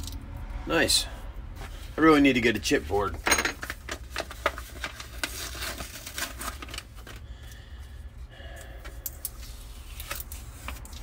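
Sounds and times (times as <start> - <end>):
paper rustling: 3.7 - 7.2.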